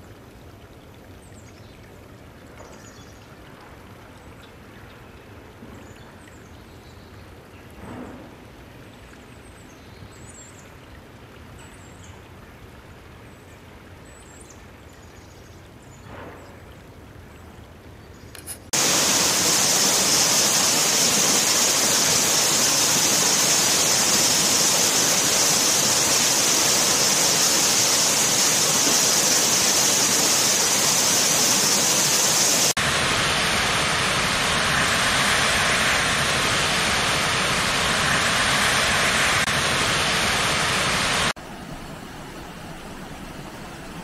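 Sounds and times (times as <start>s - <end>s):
shallow rocky stream flowing: 18.6s - 32.8s
waterfall rushing over rock: 18.8s - 41.4s.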